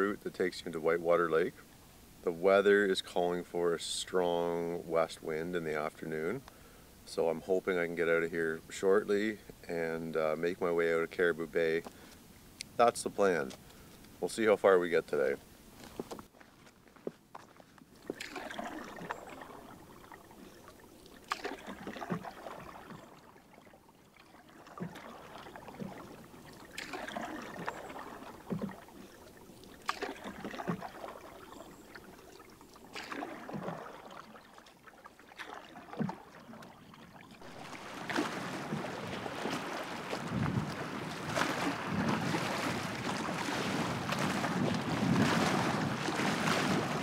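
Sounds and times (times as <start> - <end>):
paddle splashing in water: 15.7 - 47.0
paddle knocking on canoe: 18.0 - 23.1, 24.6 - 34.2, 35.4 - 36.8, 37.4 - 47.0
water rushing: 18.0 - 47.0.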